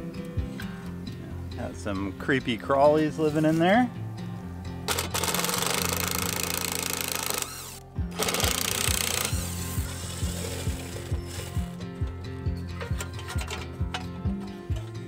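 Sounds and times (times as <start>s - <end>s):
music with steady beat: 3.9s - 15.0s
cordless drill running: 4.9s - 11.4s.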